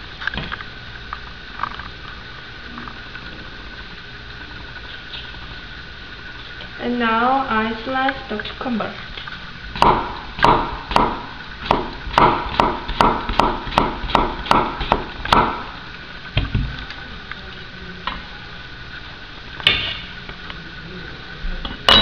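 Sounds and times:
knife chopping on wooden board: 9.8 - 15.6.

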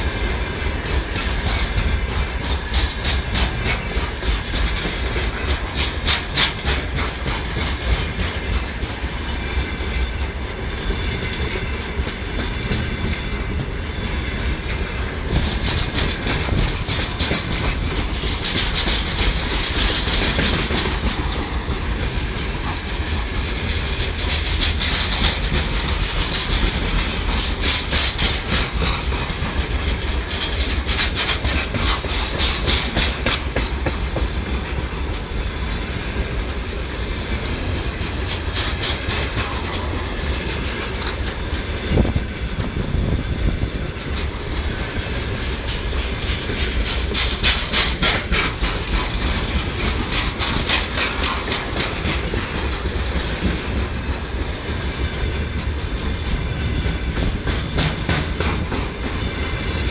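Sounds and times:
train wheels rumbling on rails: 0.0 - 59.9
wheels clickety-clack over rail joints: 0.0 - 59.9
loud knock of train wagon: 57.1 - 59.2.

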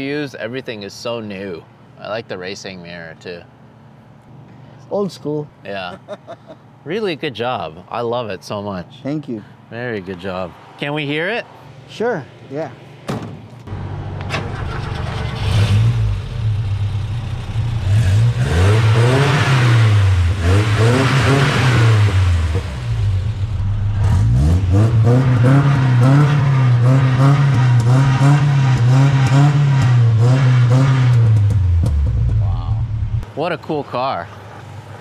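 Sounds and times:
car engine starting: 13.6 - 33.2
car engine revving: 13.7 - 33.2.

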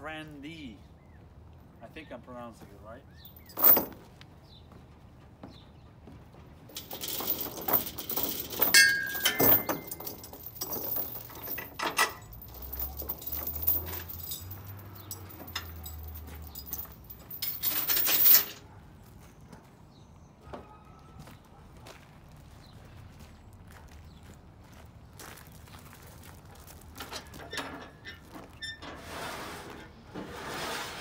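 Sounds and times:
metal parts clinking and knocking: 3.2 - 4.0, 6.7 - 18.6.

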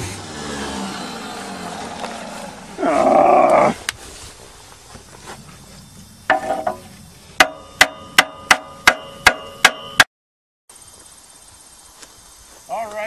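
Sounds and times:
hammer striking metal: 6.3 - 6.8, 7.4 - 10.1.

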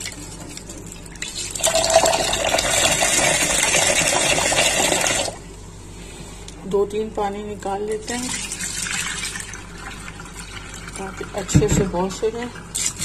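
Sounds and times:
tap water running into bowl: 1.2 - 5.4.

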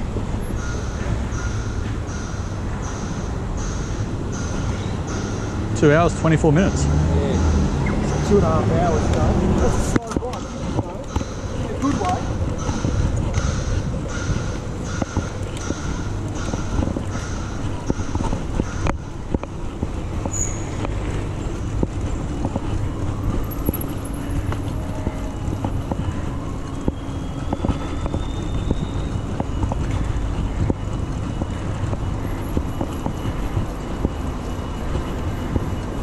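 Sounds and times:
low rumble of wind and tyres: 0.0 - 36.0
traffic going by: 0.0 - 36.0
bike clicks and rattles: 9.1 - 36.0.

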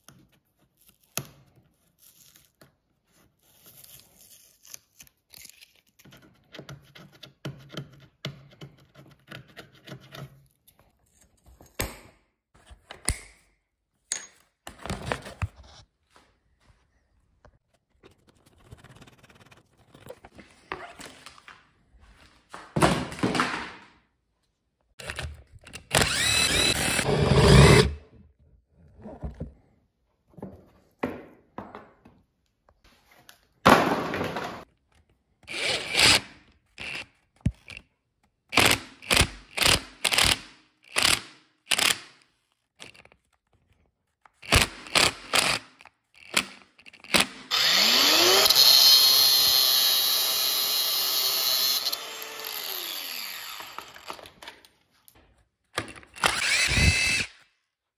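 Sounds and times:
power driver whirring: 25.0 - 28.0, 47.5 - 54.4, 55.9 - 57.4
angle grinder cutting metal: 26.0 - 28.0, 47.5 - 54.3, 56.2 - 57.3.

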